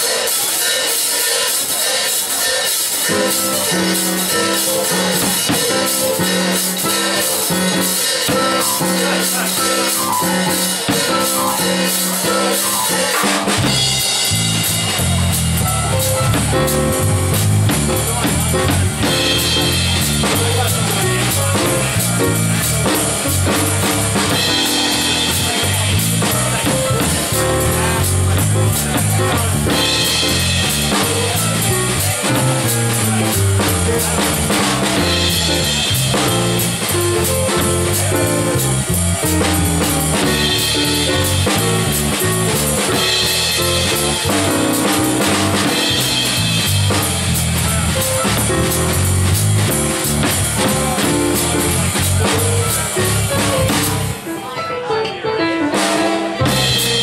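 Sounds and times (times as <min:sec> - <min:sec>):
digital piano chords: 0:00.0 - 0:57.0
jazz drum kit swinging: 0:00.0 - 0:57.0
low bass line: 0:13.6 - 0:54.2.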